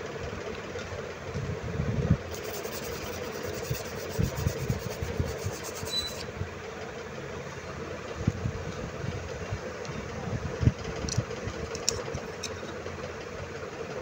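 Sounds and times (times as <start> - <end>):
low background hum: 0.0 - 14.0
toothbrush scrubbing circuit board: 2.3 - 6.2.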